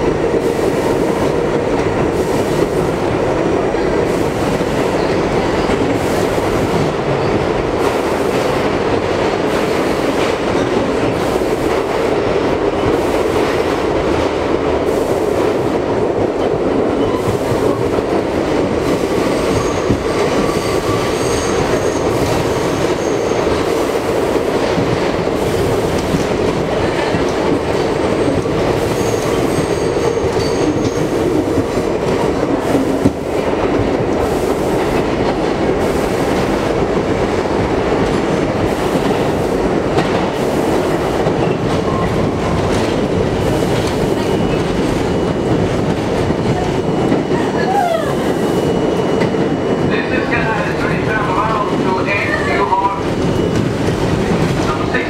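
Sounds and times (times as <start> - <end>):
subway wheels rumbling on rails: 0.0 - 55.0
high-pitched wheel squeals: 19.4 - 23.5, 29.0 - 31.1.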